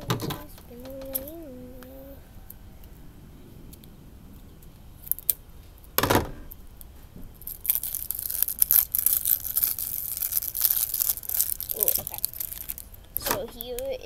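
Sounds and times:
plastic crinkling: 0:00.0 - 0:02.0, 0:03.8 - 0:14.0
small clicks: 0:00.0 - 0:02.0
plastic ripping: 0:05.0 - 0:13.6.

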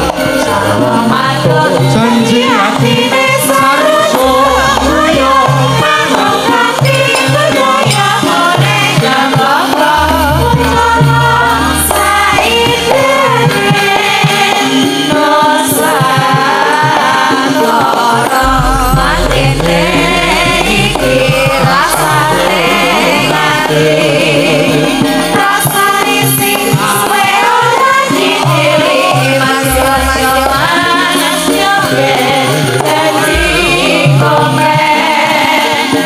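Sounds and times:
gamelan ensemble playing: 0:00.0 - 0:36.0
women singing together: 0:00.0 - 0:36.0
deep sustained low notes: 0:18.4 - 0:25.0, 0:33.3 - 0:34.6.

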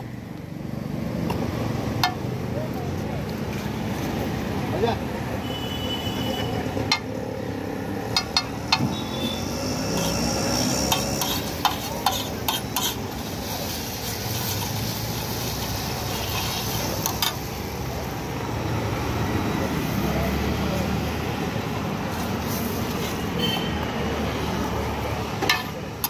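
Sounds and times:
sizzling: 0:07.6 - 0:18.8, 0:22.1 - 0:23.3
spoon scraping on hot griddle: 0:08.0 - 0:17.7.

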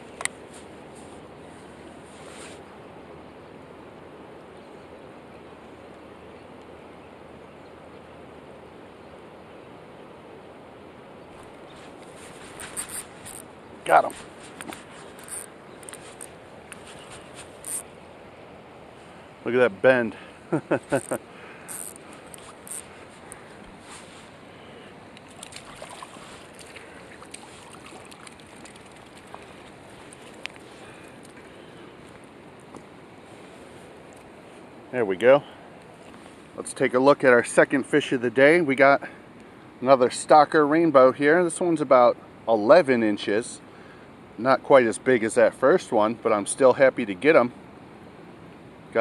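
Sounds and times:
river flowing: 0:00.0 - 0:36.7
river water rushing: 0:20.1 - 0:34.9
small splashes and ticks: 0:21.0 - 0:23.5, 0:25.1 - 0:32.9.

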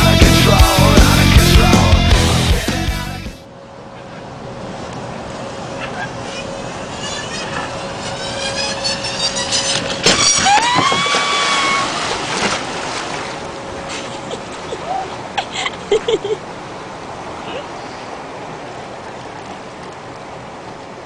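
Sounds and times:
kayak squealing on concrete ramp: 0:05.7 - 0:12.6
kayak splashing into water: 0:10.0 - 0:13.5.

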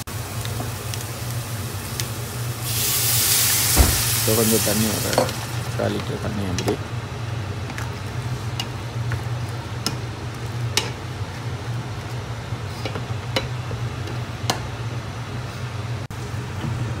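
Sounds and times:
prawns sizzling in pan: 0:00.0 - 0:06.8
steady low hum: 0:00.0 - 0:17.0.

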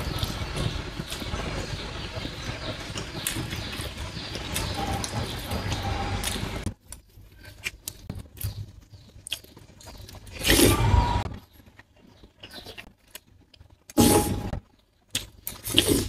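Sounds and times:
loud scrape: 0:14.0 - 0:14.5.

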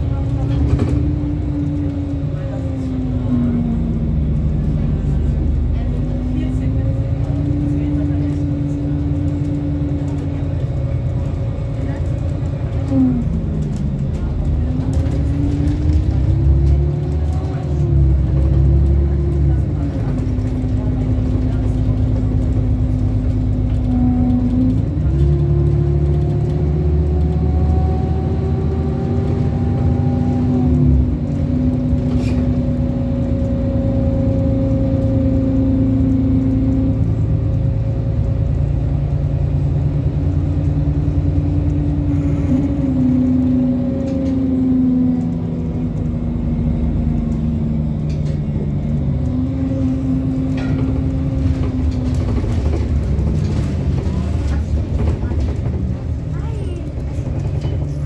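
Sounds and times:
bus engine droning: 0:00.0 - 0:58.0.

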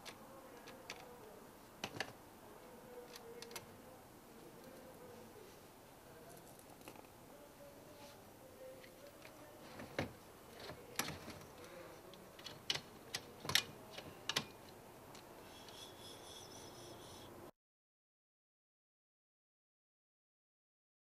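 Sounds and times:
faint high buzz: 0:15.4 - 0:17.5.

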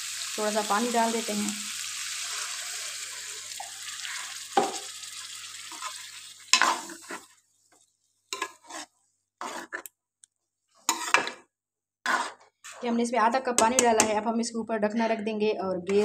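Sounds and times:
curry sizzling in a pan: 0:00.0 - 0:09.9, 0:10.8 - 0:11.4, 0:12.1 - 0:12.8
spoon scraping pan: 0:02.2 - 0:09.9, 0:10.8 - 0:13.0
metal spoon knocking pan: 0:13.6 - 0:14.2.

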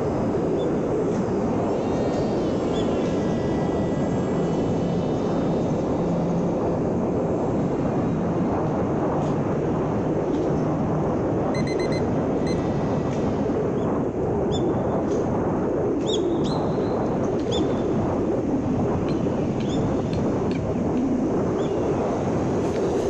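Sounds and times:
model airplane motor buzzing: 0:00.0 - 0:09.0
wind noise: 0:00.0 - 0:23.0
short high beeps: 0:11.6 - 0:12.6.

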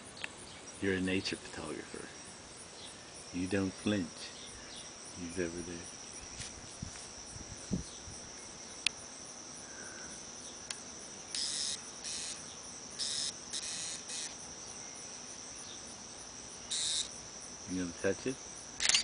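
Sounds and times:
insects trilling: 0:00.0 - 0:19.0
short hissy bursts: 0:13.0 - 0:14.4, 0:16.7 - 0:17.1.

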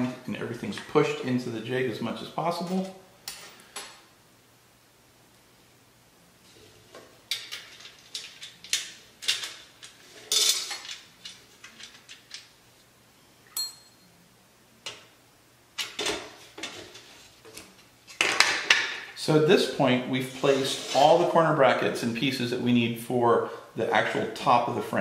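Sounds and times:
brief metallic ringing ping: 0:13.5 - 0:14.1.

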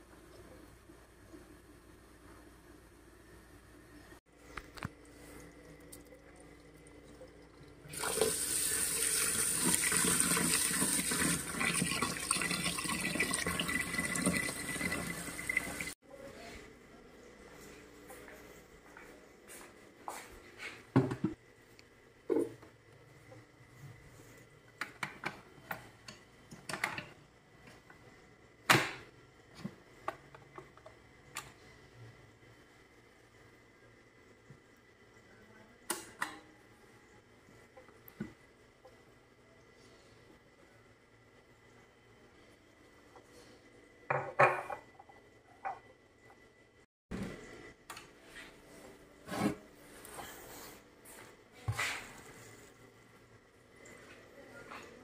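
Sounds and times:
tap water pouring into pot: 0:05.8 - 0:15.9.

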